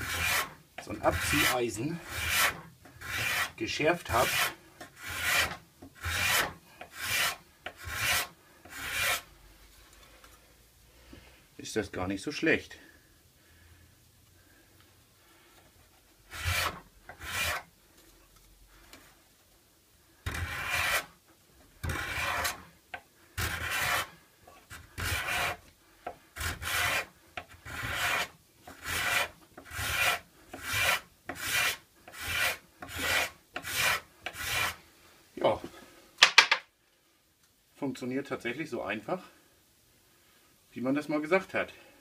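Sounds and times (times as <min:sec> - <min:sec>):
card scraper rasping on wood: 0:00.0 - 0:09.3, 0:16.3 - 0:17.6, 0:20.2 - 0:21.1, 0:21.8 - 0:22.6, 0:23.4 - 0:24.1, 0:24.7 - 0:25.6, 0:26.4 - 0:34.8.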